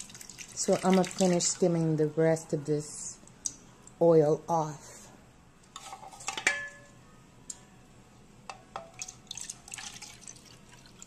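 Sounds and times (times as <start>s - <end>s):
liquid pouring and dripping: 0.0s - 1.4s, 8.9s - 11.0s.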